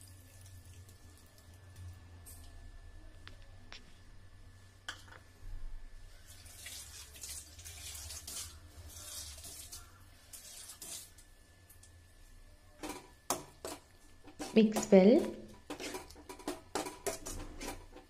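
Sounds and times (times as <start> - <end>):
liquid simmering and bubbling: 0.0 - 3.0, 5.9 - 14.6
low steady hum: 0.0 - 18.0.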